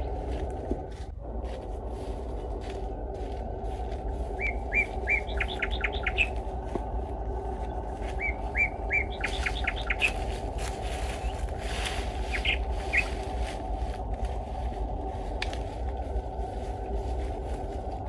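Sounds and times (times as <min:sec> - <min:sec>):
low background noise: 0:00.0 - 0:18.0
small birds chirping: 0:03.6 - 0:13.8.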